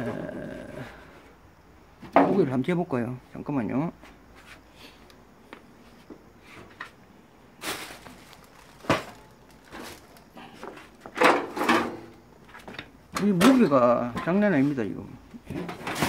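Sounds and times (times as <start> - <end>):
plastic bags rustling: 7.5 - 11.9
rustling clatter: 7.6 - 12.7
objects being moved: 7.6 - 14.8, 15.4 - 16.0.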